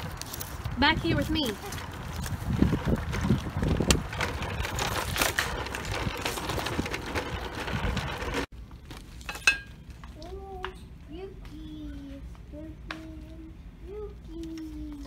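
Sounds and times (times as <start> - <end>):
plastic cart rolling over asphalt: 0.0 - 9.2.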